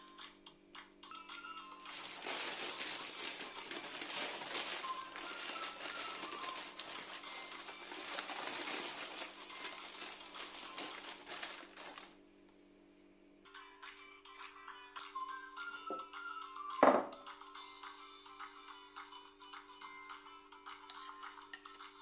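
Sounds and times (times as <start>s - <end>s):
parchment paper crinkling: 1.8s - 12.2s.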